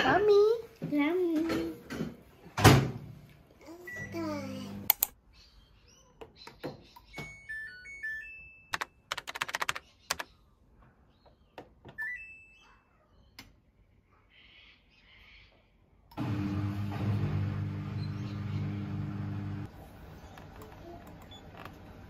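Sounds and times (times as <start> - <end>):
rapid clicking: 8.8 - 10.3.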